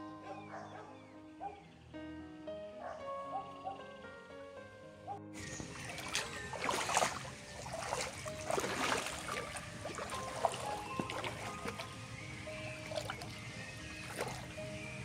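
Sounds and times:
footsteps wading through water: 5.4 - 15.0.

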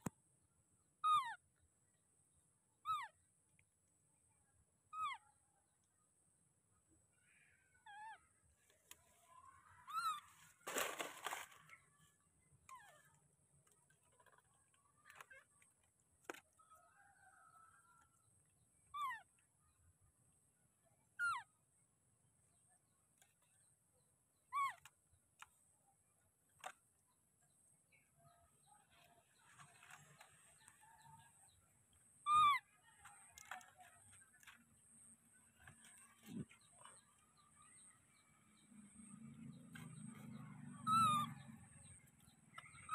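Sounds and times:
baby monkey squeaky calls: 1.0 - 1.4, 2.8 - 3.2, 4.9 - 5.2, 9.8 - 10.4, 18.9 - 19.3, 21.2 - 21.5, 24.5 - 24.9, 32.2 - 32.7, 40.8 - 41.4, 42.6 - 42.9
brief crackle: 10.4 - 11.8.

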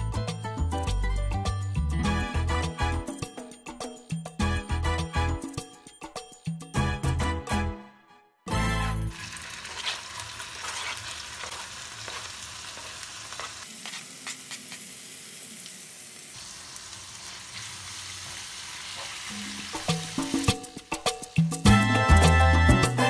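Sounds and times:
chicken sizzling in a frying pan: 9.1 - 21.8.

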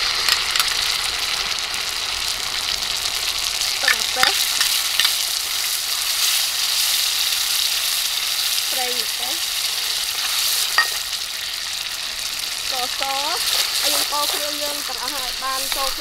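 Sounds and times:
sauce sizzling in hot oil: 0.0 - 16.0
metal ladle scraping a wok: 13.4 - 14.5.

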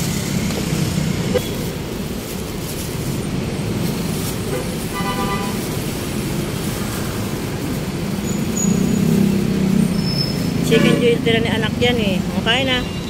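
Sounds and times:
vehicle rumble: 0.0 - 13.0
high squeal: 8.2 - 9.1, 9.8 - 10.7.

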